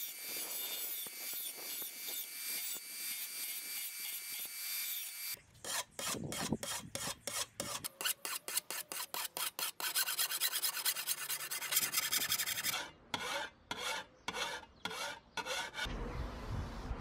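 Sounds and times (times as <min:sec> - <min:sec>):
file rasping on steel: 0:05.6 - 0:15.9.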